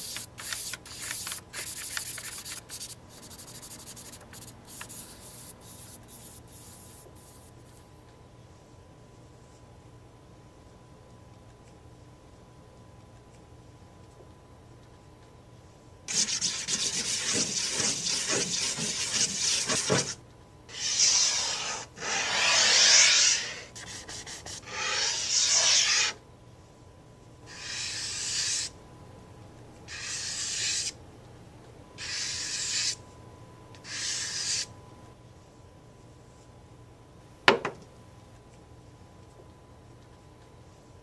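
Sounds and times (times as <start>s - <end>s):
charcoal scribbling on paper: 0.0s - 7.5s, 16.1s - 26.2s, 27.5s - 28.7s, 29.9s - 30.9s, 32.0s - 33.0s, 33.9s - 34.6s.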